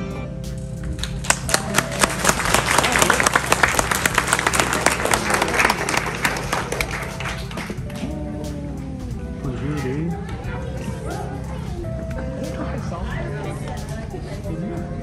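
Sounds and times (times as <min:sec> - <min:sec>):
music playing: 0:00.0 - 0:15.0
audience applauding: 0:00.9 - 0:08.2.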